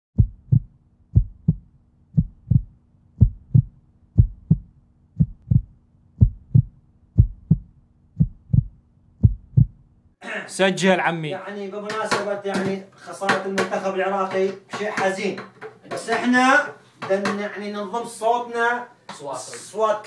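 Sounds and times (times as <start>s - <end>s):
heartbeat thumps: 0.2s - 9.8s.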